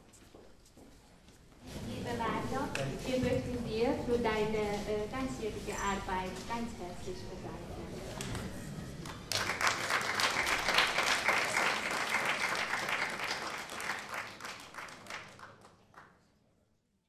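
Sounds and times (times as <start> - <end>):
audience applauding: 9.0 - 16.2.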